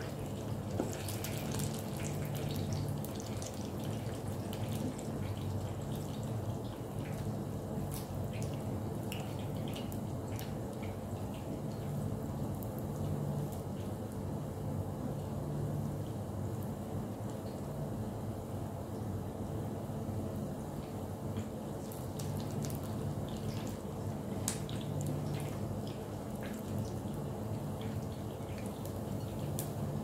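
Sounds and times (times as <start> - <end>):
food deep-frying in oil: 0.0 - 14.3, 20.7 - 30.0
low steady hum: 0.0 - 30.0.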